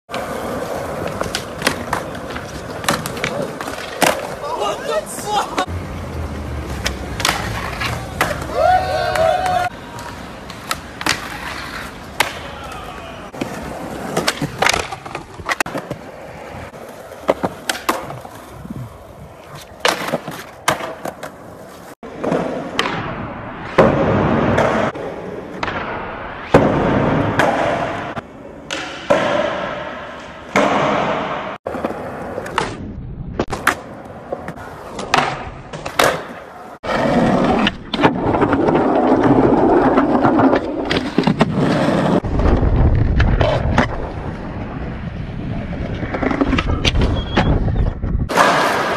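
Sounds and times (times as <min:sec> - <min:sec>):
skateboard clacking: 0:00.1 - 0:18.5
skateboard wheels rolling: 0:00.1 - 0:48.9.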